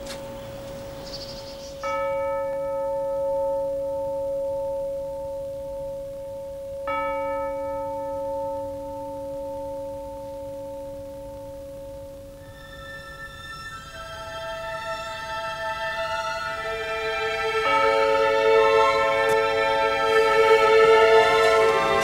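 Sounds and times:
music with held notes: 0:08.8 - 0:22.0
bell ringing: 0:12.3 - 0:22.0.

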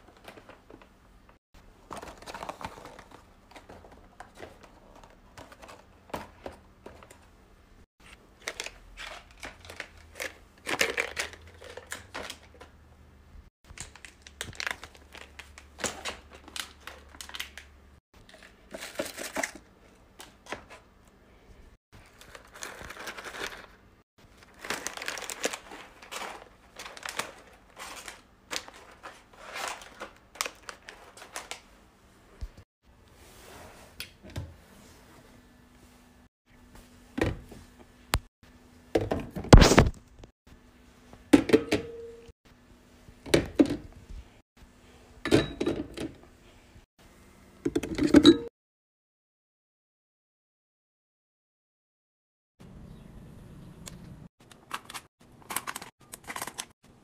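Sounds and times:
plastic wrappers crinkling: 0:08.4 - 0:12.6, 0:13.7 - 0:19.7, 0:22.0 - 0:31.7, 0:54.6 - 0:56.7.

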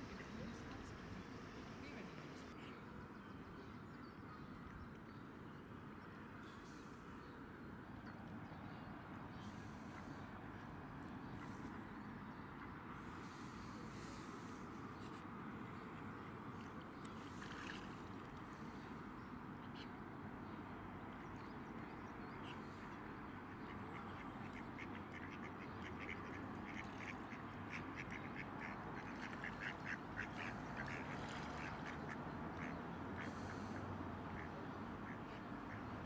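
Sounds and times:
outdoor background noise: 0:00.0 - 0:36.0
waterfowl calling: 0:23.7 - 0:33.8.

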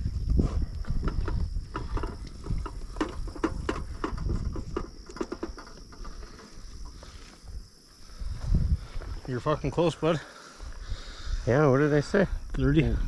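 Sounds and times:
knocks and rattles of scale: 0:01.0 - 0:06.6.

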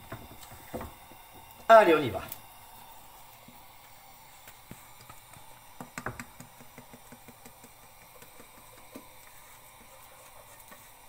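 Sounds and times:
wooden spatula tapping metal saucepan: 0:05.8 - 0:09.1.

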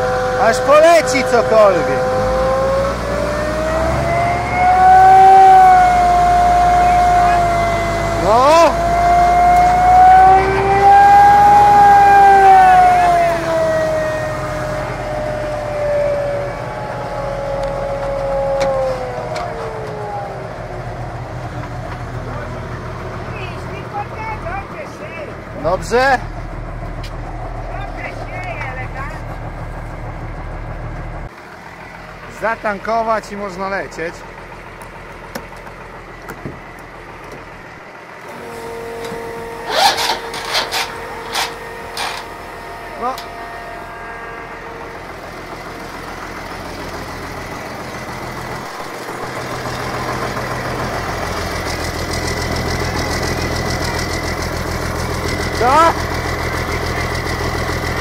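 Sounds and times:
blower fan whine: 0:00.0 - 0:32.0, 0:35.4 - 0:58.0
fuel pump humming: 0:00.0 - 0:58.0
low engine drone: 0:00.0 - 0:58.0
fuel hose scraping and rattling: 0:35.0 - 0:42.6.

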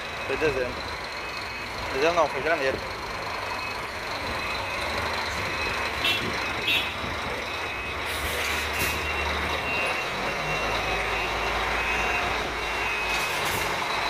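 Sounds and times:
heavy truck engine running: 0:00.0 - 0:14.0
reversing beeper: 0:03.4 - 0:14.0.

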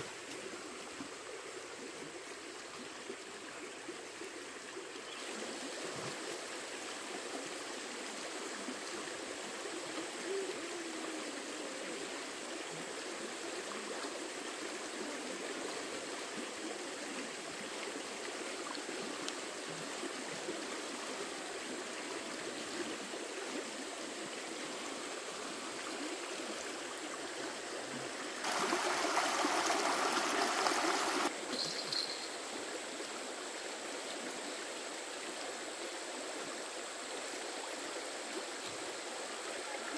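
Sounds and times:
running water: 0:00.0 - 0:39.9
louder water rush: 0:28.3 - 0:31.4.

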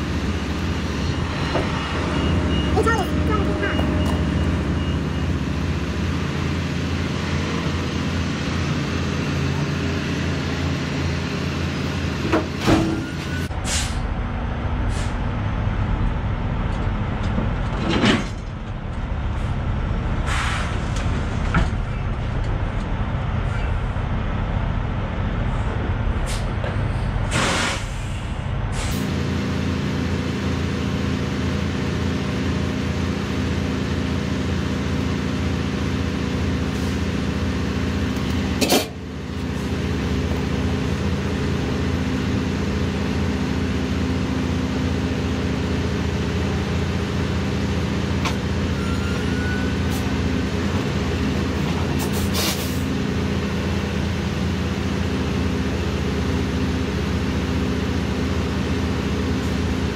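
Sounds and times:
trailer rocking: 0:00.0 - 0:59.9
truck diesel engine running: 0:00.0 - 0:59.9
air brake release hisses: 0:13.6 - 0:14.0, 0:20.3 - 0:20.8, 0:27.3 - 0:29.0, 0:52.0 - 0:52.8.

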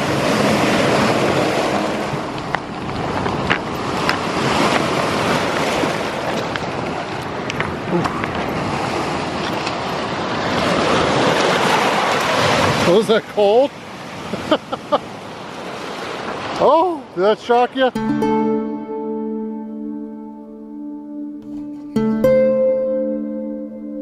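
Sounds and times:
wind buffeting microphone: 0:00.0 - 0:12.9
waves washing over pebbles: 0:00.0 - 0:17.9.

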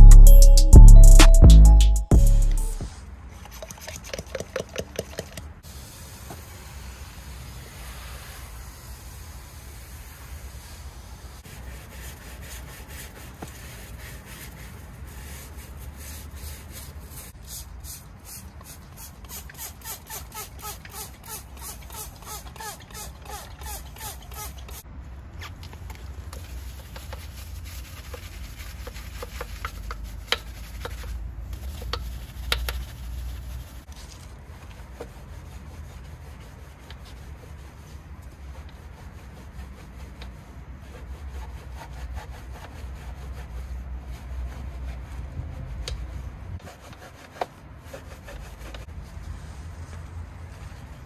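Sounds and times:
scrubbing against a surface: 0:26.2 - 0:51.0.

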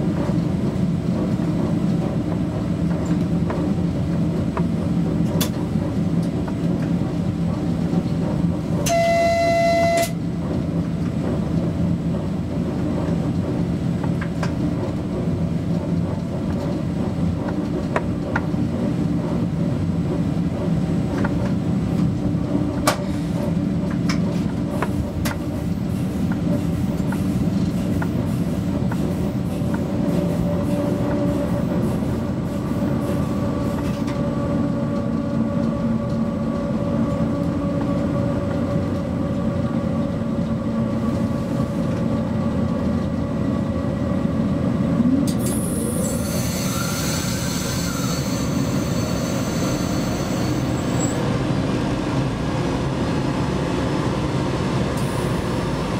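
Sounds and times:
locomotive running noise: 0:00.0 - 0:55.9
sharp clicks from rails: 0:00.1 - 0:43.6
high signal tone: 0:08.9 - 0:10.2.

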